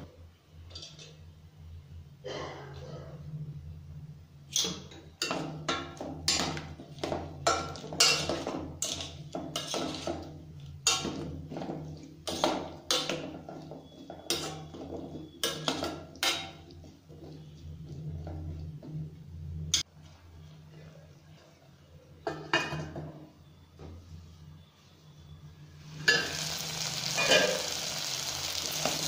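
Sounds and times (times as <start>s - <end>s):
metal spoon scraping a pot: 6.2s - 11.3s, 12.2s - 18.5s.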